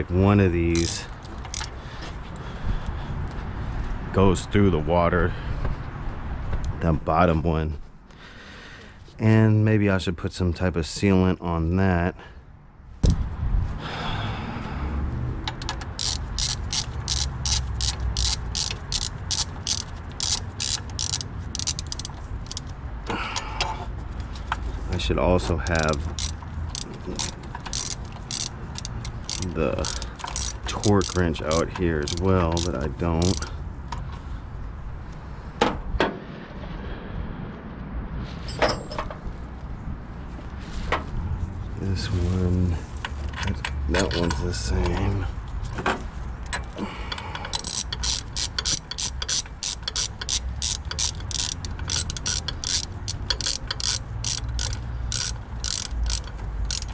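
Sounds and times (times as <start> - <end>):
ratchet wrench clicking: 0.6 - 1.8, 15.4 - 23.8, 25.4 - 34.1, 46.4 - 56.9.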